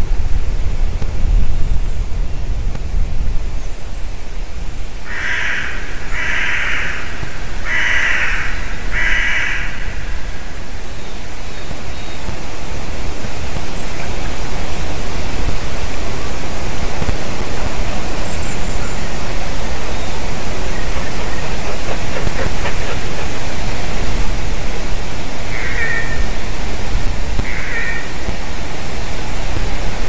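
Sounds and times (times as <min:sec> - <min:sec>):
loud rushing noise: 0:09.6 - 0:30.0.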